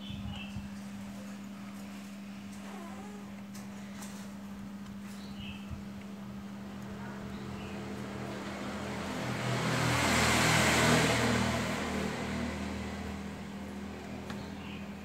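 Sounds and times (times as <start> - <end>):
desk fan humming: 0.0 - 15.0
vehicle passing by: 7.0 - 15.0.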